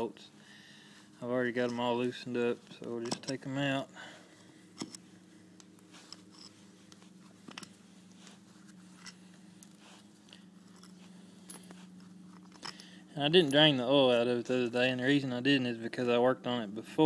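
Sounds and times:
low hum: 0.0s - 17.0s
bolts clicking and scraping: 1.5s - 3.7s, 4.7s - 13.8s.

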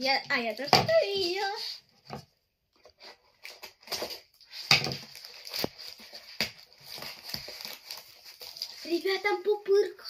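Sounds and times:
plastic packaging crinkling: 3.4s - 9.8s.

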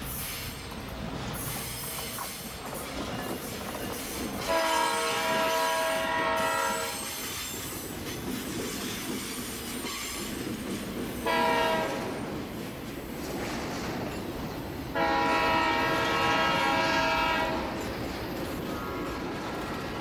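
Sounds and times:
train running noise: 0.0s - 20.0s
locomotive air horn: 4.4s - 7.1s, 11.2s - 12.1s, 14.9s - 17.8s.

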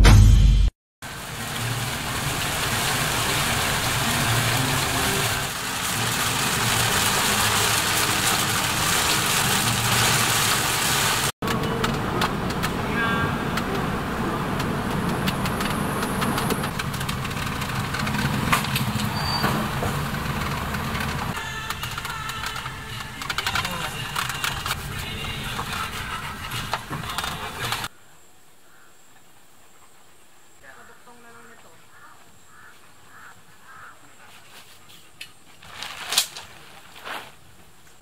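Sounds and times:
car driving on wet road: 1.0s - 27.9s
rain: 1.0s - 27.9s.

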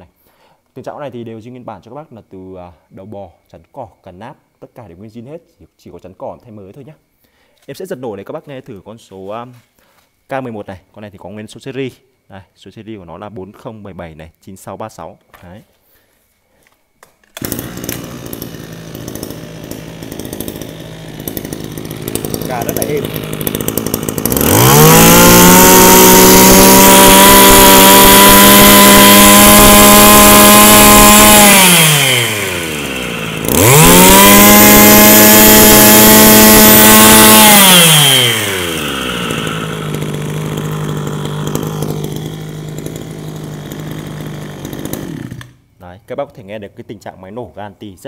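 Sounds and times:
brush cutter engine revving: 17.3s - 45.6s.

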